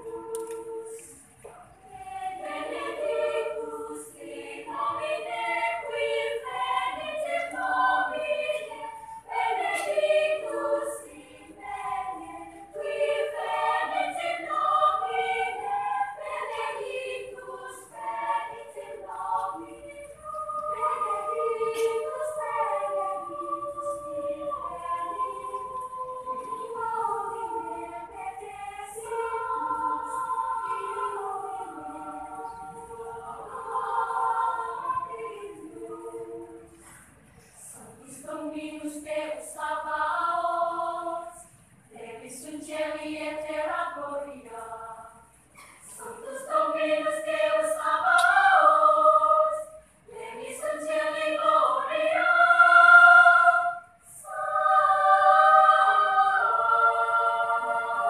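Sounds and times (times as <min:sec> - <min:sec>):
children's choir singing: 0:00.0 - 0:58.0.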